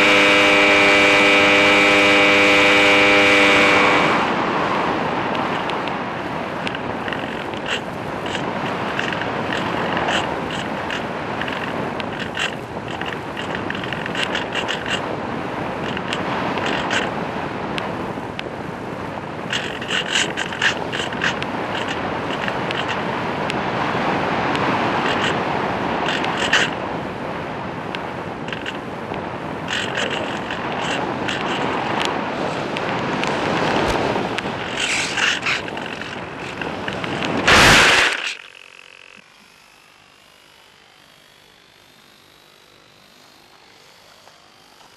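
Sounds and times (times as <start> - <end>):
wind rushing over microphone: 0.0 - 38.4
short crackles: 6.6 - 17.2, 28.4 - 39.6
glider crashing into grass: 37.4 - 38.4.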